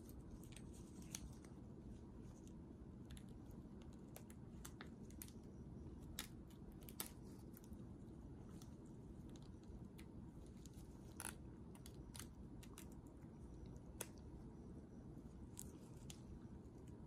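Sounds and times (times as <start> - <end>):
crayfish shell clicking and crackling: 6.0 - 7.8, 8.5 - 13.1.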